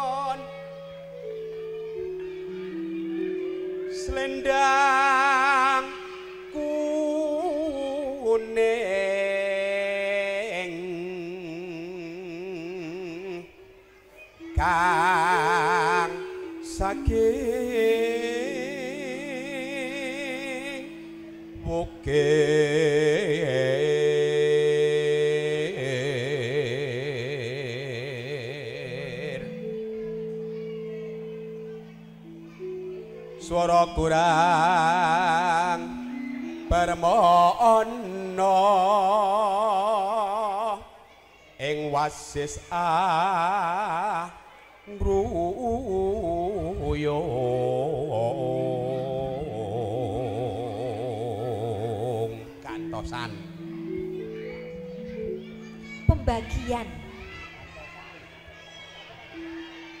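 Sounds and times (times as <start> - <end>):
electronic keyboard chords: 0.0 - 9.0, 9.8 - 40.4, 45.0 - 60.0
steady instrumental tone: 0.0 - 10.0, 10.6 - 39.8, 45.1 - 60.0
person singing with vibrato: 0.0 - 60.0.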